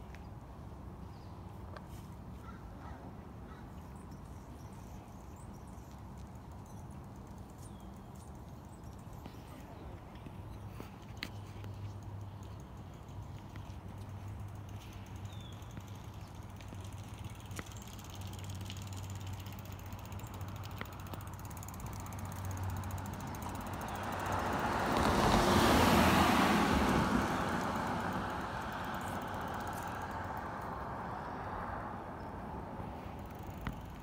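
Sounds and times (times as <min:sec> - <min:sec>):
road vehicle driving past: 0:16.4 - 0:34.0.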